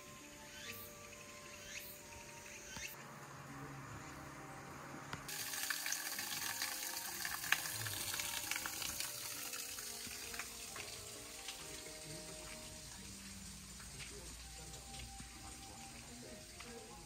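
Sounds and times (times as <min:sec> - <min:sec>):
running water: 0:05.3 - 0:17.0.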